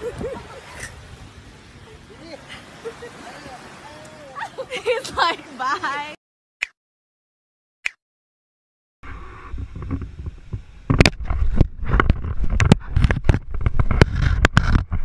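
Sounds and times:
knocks and scrapes on camera: 9.5s - 15.0s.

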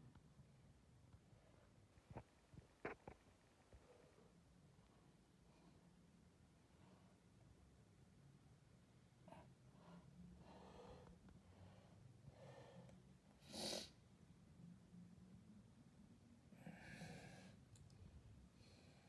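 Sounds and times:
soft breathing: 9.2s - 14.0s, 16.5s - 19.0s.

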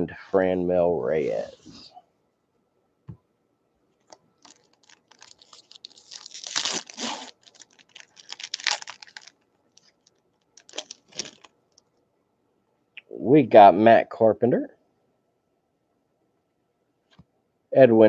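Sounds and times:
wrapper tearing and crinkling: 4.4s - 11.5s.

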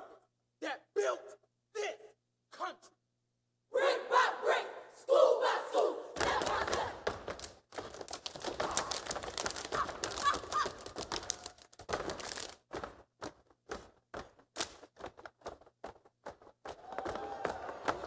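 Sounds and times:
stomps claps and body slaps: 6.2s - 18.0s.

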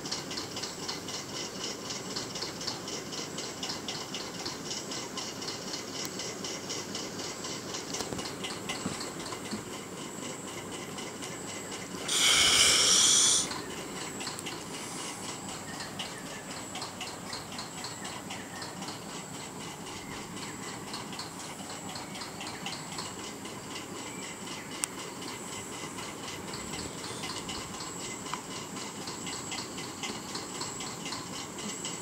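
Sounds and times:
crickets chirping: 11.5s - 20.8s
loud even hiss: 12.0s - 13.6s.

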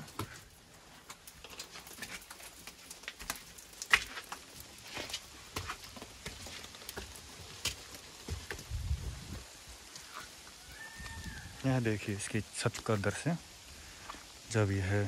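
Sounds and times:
footsteps on wet stone: 0.0s - 11.4s
water dripping: 0.0s - 15.0s.

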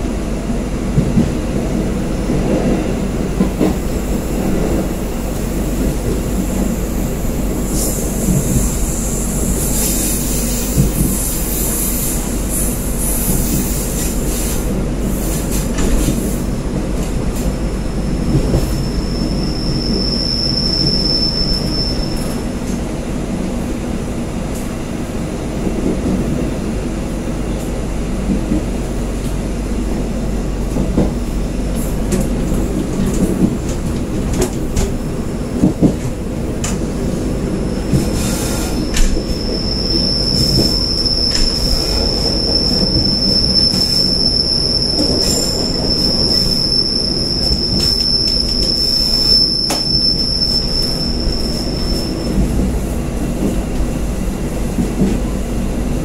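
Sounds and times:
train wheels rumbling on rails: 0.0s - 56.0s
high wheel squeal: 18.6s - 22.4s, 37.5s - 52.6s
train wheels clicking: 37.8s - 53.9s.

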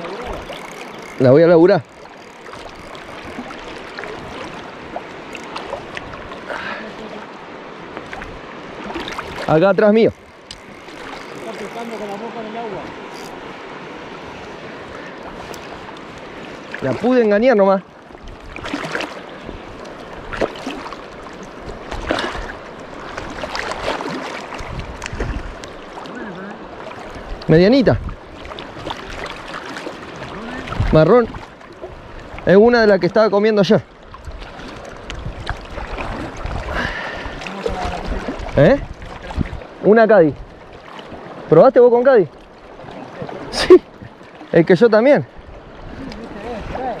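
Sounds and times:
river water running: 0.0s - 47.0s
splashes in water: 8.0s - 9.7s, 18.5s - 19.4s, 20.2s - 27.2s.

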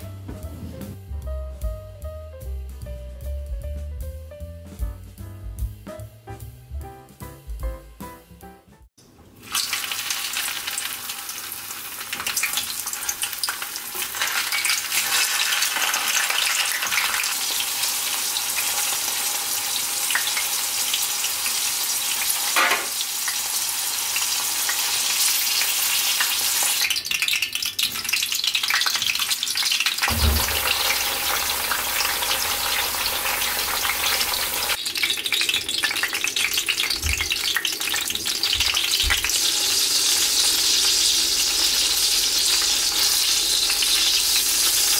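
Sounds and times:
vegetables deep-frying in oil: 9.0s - 44.9s.

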